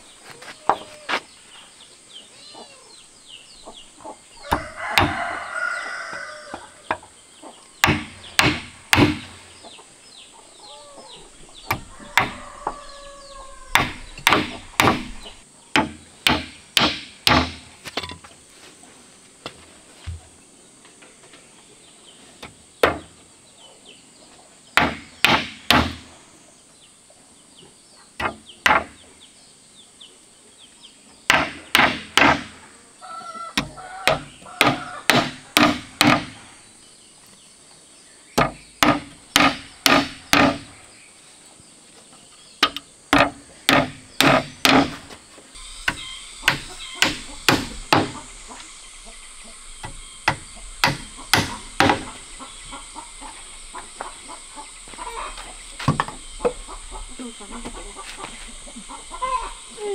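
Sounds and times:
hammer driving nails into wood: 0:07.8 - 0:09.4, 0:13.7 - 0:17.7, 0:33.6 - 0:36.4, 0:38.4 - 0:40.7, 0:42.6 - 0:45.0.

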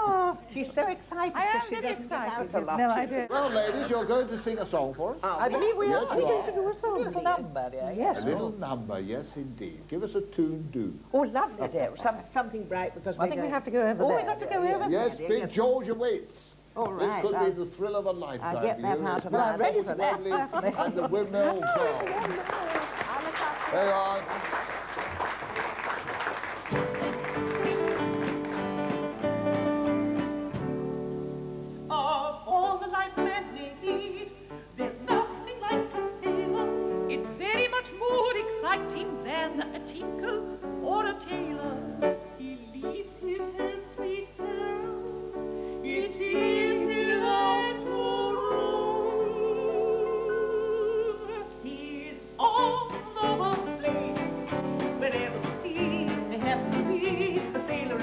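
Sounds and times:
band playing chords: 0:26.6 - 0:32.5.

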